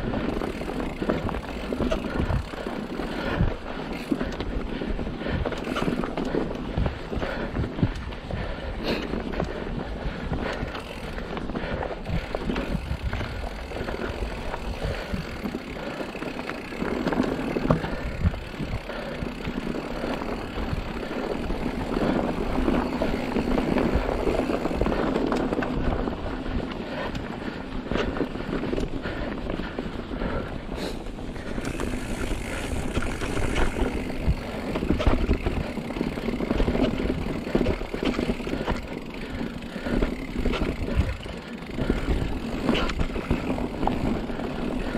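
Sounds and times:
bike knocks and rattles: 0:00.0 - 0:04.5, 0:10.4 - 0:26.2, 0:31.4 - 0:44.9
bike tyre and trail rumble: 0:00.0 - 0:44.9.

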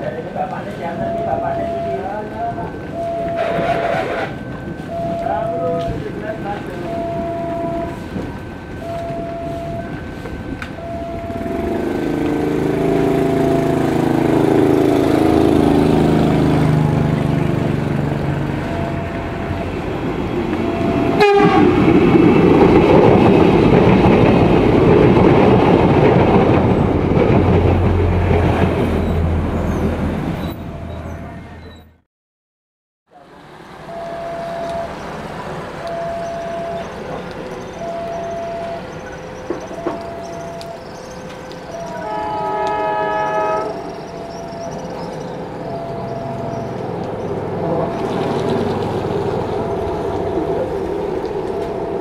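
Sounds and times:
level crossing warning signal: 0:00.0 - 0:32.0, 0:33.2 - 0:52.0
diesel engine running: 0:00.1 - 0:31.6, 0:33.2 - 0:52.0
train wheels clattering on rails: 0:00.3 - 0:30.0, 0:34.7 - 0:52.0
train horn blast: 0:11.4 - 0:16.5, 0:20.6 - 0:21.9, 0:41.5 - 0:44.6.

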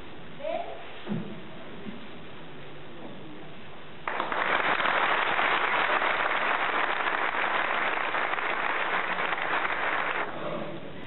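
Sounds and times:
audience applauding: 0:04.0 - 0:10.4.

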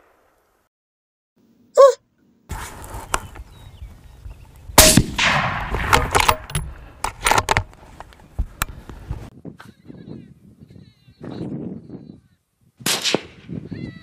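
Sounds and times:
rifle shot: 0:04.8 - 0:06.5, 0:12.8 - 0:13.5.

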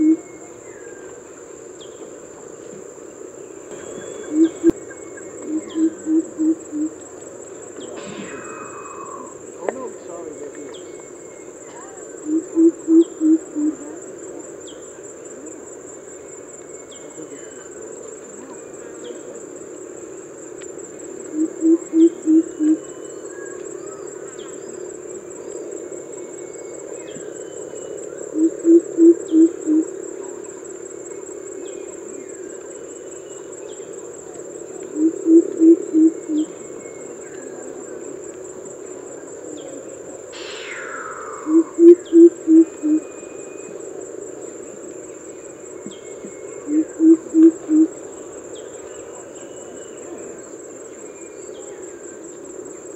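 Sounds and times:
bird low hooting call: 0:00.0 - 0:01.2, 0:03.7 - 0:07.0, 0:07.8 - 0:13.8, 0:21.3 - 0:24.6, 0:26.2 - 0:30.0, 0:34.9 - 0:37.6, 0:40.3 - 0:43.8, 0:45.8 - 0:47.9
high-pitched insect drone: 0:00.0 - 0:52.9
short falling whistle: 0:08.0 - 0:09.3, 0:40.4 - 0:42.2.

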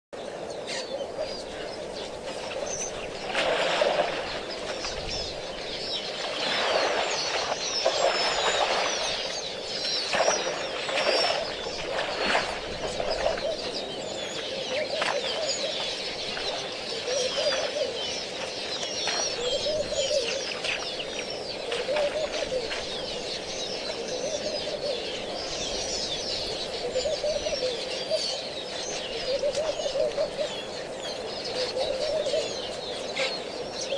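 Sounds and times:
small songbirds chirping: 0:00.2 - 0:33.9
doves cooing: 0:10.1 - 0:18.4, 0:19.0 - 0:33.9.

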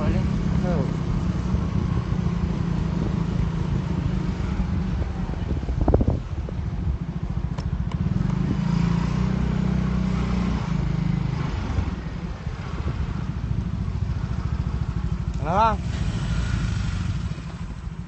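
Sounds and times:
wind and road rush: 0:00.0 - 0:18.0
small motorcycle engine running: 0:13.6 - 0:18.0.

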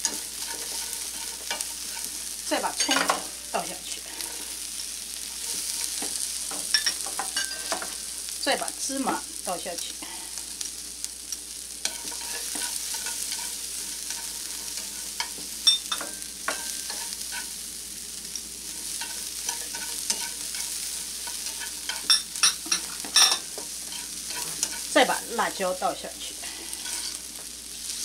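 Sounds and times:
chopsticks tapping and scraping pan: 0:00.0 - 0:04.6, 0:05.2 - 0:08.0, 0:11.8 - 0:17.6, 0:18.3 - 0:25.5, 0:26.7 - 0:28.0
food sizzling in a skillet: 0:00.0 - 0:28.0.

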